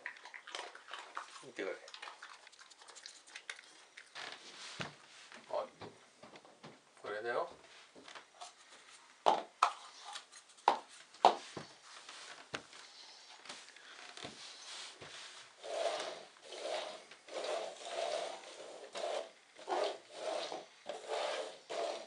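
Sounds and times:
cups sliding on floorboards: 0:14.2 - 0:22.0.

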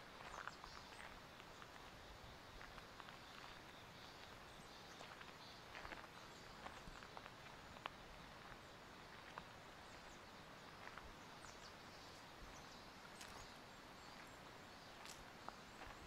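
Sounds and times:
faint outdoor noise: 0:00.0 - 0:16.0.

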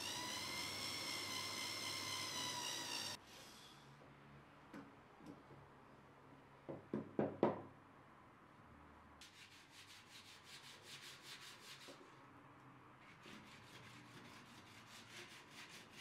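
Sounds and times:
hand sanding wood: 0:13.2 - 0:16.0.

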